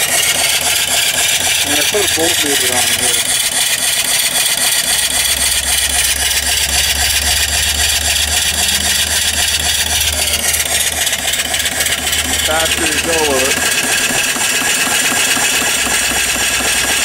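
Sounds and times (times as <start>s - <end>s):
steam hiss: 0.0s - 4.8s, 8.6s - 17.0s
steam engine running: 0.0s - 17.0s
low hum: 4.6s - 14.5s.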